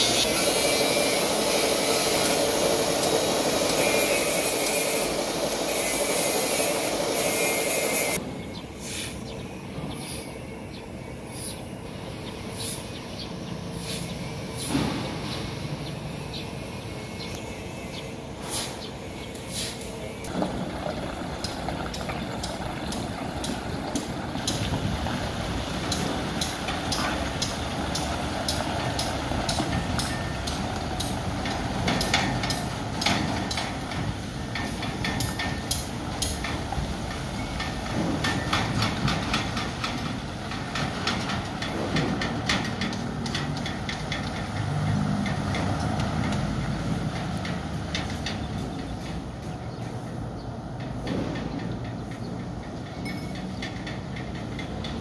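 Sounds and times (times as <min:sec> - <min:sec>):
dump truck diesel engine: 0:00.0 - 0:55.0
metallic rattles and knocks: 0:20.3 - 0:49.4, 0:50.7 - 0:55.0.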